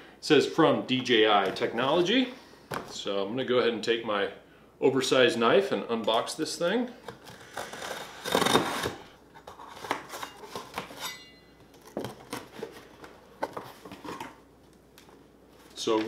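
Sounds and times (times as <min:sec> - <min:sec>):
knife slitting packing tape: 0:07.1 - 0:11.2.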